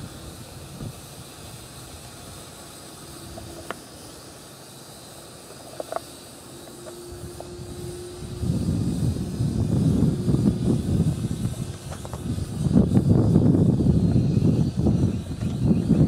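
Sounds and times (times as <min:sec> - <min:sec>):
distant drone motors humming: 0:00.0 - 0:16.0
steady outdoor hiss: 0:00.0 - 0:16.0.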